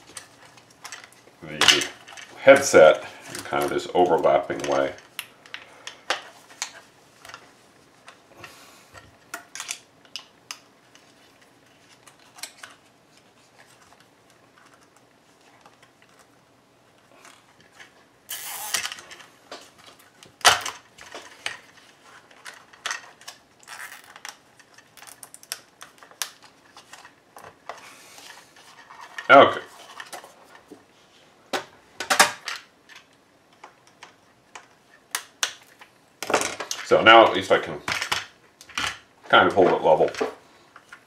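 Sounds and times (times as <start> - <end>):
plastic parts clicking and knocking: 3.3 - 8.2, 18.8 - 27.8, 31.5 - 36.9, 37.9 - 41.0
zip tie being pulled tight: 18.3 - 18.8.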